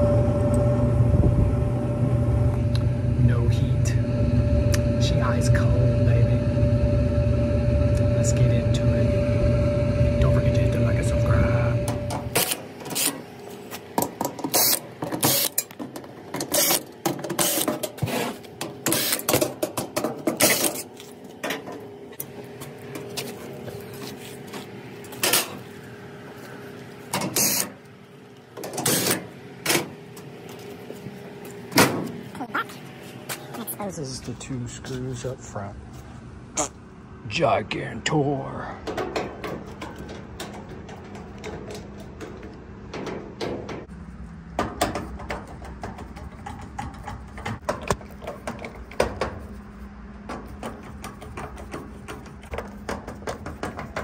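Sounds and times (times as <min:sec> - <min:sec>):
faint steady hum: 0:00.0 - 0:19.4
low steady hum: 0:00.0 - 0:53.9.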